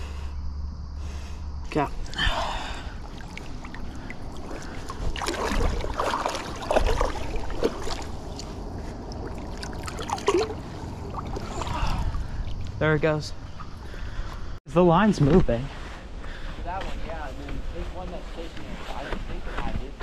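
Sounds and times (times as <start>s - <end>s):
creek water splashing: 1.8s - 12.8s.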